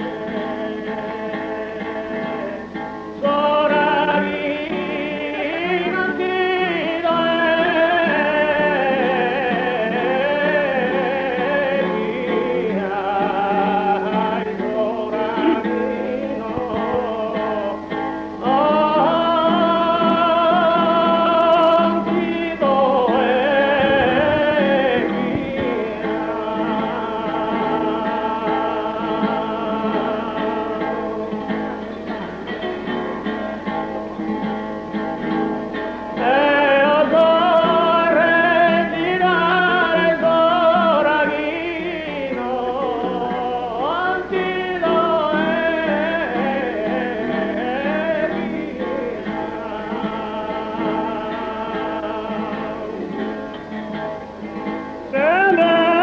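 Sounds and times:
man singing ornamented phrases: 0:00.0 - 0:32.6, 0:36.2 - 0:53.5, 0:55.1 - 0:56.0
guitar accompaniment: 0:00.0 - 0:56.0.

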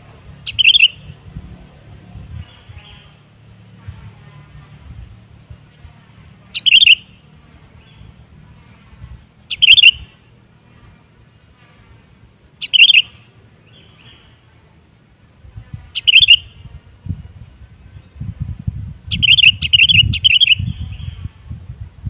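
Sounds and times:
bulbul calls: 0:00.4 - 0:01.5, 0:06.5 - 0:08.2, 0:09.4 - 0:10.2, 0:12.4 - 0:17.8, 0:19.1 - 0:21.3.

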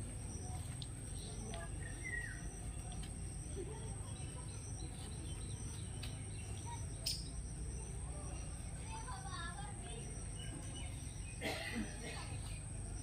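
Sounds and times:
falling bird chirp: 0:01.1 - 0:08.5.

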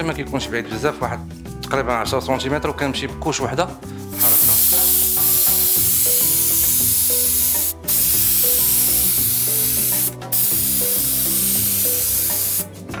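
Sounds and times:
spray gun hissing: 0:04.1 - 0:12.7.

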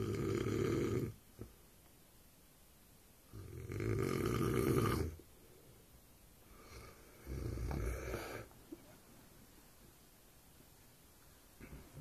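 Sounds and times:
man snoring: 0:00.0 - 0:01.2, 0:03.3 - 0:05.2, 0:06.7 - 0:08.5.

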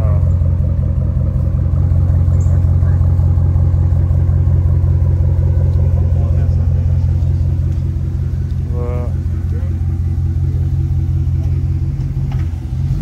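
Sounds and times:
loud engine idling: 0:00.0 - 0:13.0.

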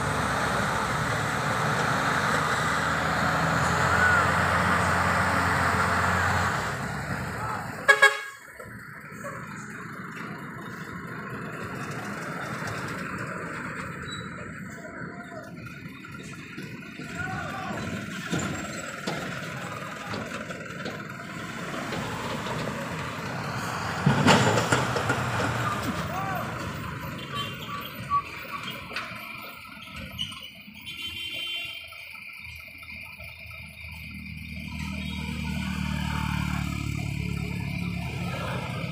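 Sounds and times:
truck engine running under load: 0:00.0 - 0:38.9
wheels spinning on asphalt: 0:08.6 - 0:38.9
car passing: 0:21.2 - 0:27.0.

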